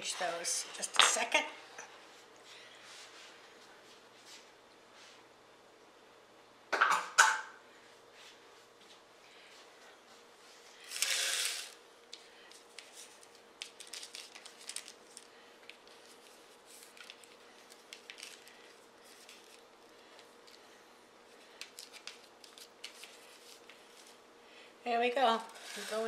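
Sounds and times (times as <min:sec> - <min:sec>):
paper rustling: 0:12.5 - 0:20.6, 0:21.5 - 0:24.2
pastry scraping on sheet pan: 0:25.4 - 0:26.0.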